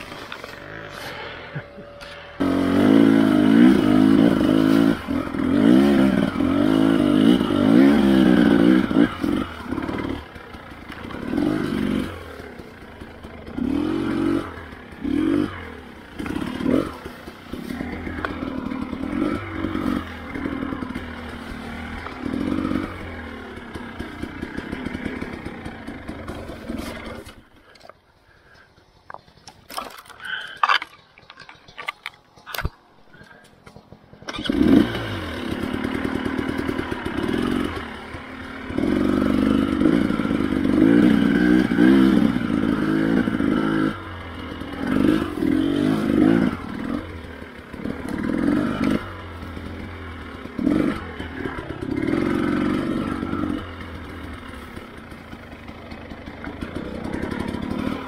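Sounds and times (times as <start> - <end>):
dirt bike engine revving: 0.0 - 27.7, 29.7 - 58.0.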